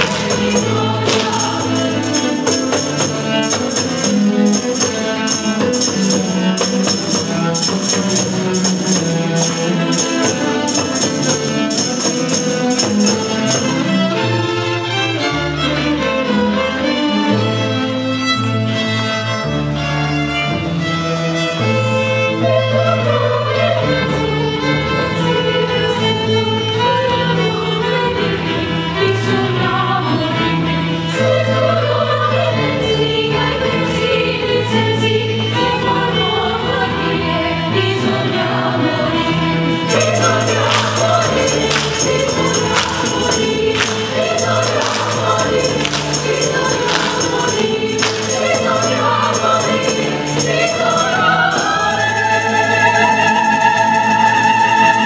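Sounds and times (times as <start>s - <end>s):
drum: 0.0s - 13.8s
choir singing: 0.0s - 14.4s, 31.1s - 55.0s
tambourine: 0.0s - 14.4s, 39.9s - 55.0s
strings guitars and harpsichord: 0.0s - 55.0s.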